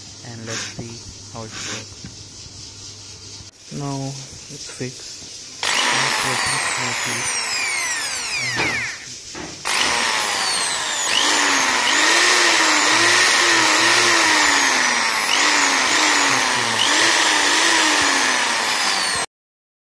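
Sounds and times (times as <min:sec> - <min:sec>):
electric drill running: 0:05.6 - 0:19.3.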